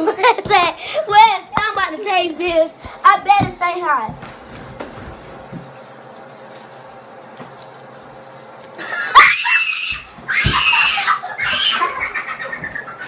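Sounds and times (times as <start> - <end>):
person squealing and shrieking: 8.9 - 12.4.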